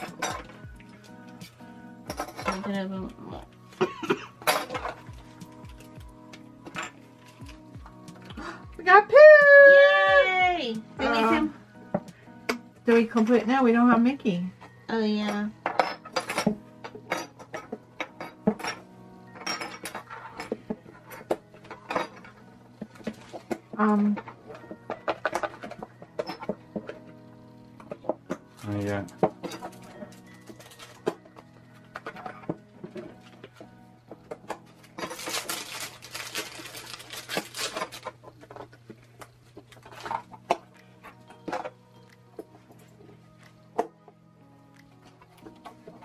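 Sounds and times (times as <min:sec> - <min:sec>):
soft background music: 0:00.0 - 0:46.0
packaging crinkling and tearing: 0:28.5 - 0:31.4, 0:34.6 - 0:41.4.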